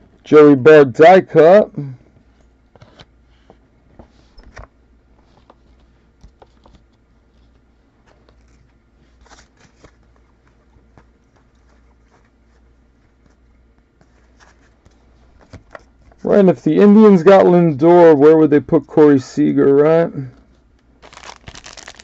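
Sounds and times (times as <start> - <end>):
cards rustling and clicking: 4.5 - 13.4, 21.0 - 22.0.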